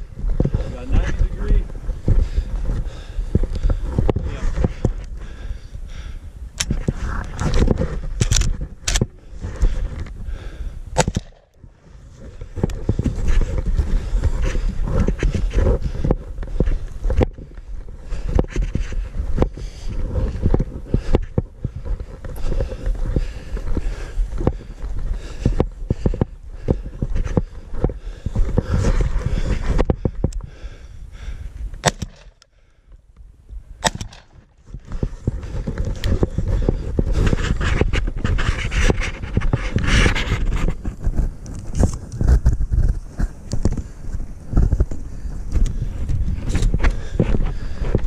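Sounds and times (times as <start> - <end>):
footsteps on rough ground: 0.0 - 48.0
gear rustling and rattling: 12.0 - 30.4, 34.3 - 48.0.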